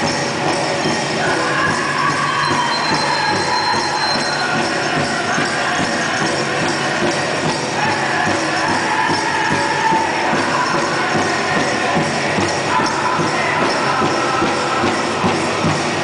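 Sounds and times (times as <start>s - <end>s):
bells jingling: 0.0s - 16.0s
big drum beating: 0.0s - 16.0s
high-pitched singing: 1.2s - 6.8s.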